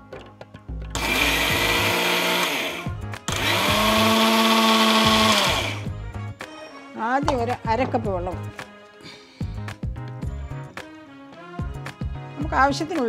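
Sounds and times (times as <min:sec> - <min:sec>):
mixer grinder grinding spices: 0:01.0 - 0:05.9.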